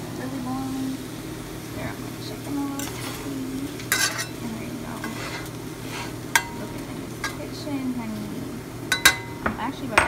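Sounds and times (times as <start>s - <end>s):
chicken sizzling in a frying pan: 0.0s - 10.0s
fork clinking against pan: 3.9s - 4.4s, 6.3s - 6.6s, 8.9s - 9.4s.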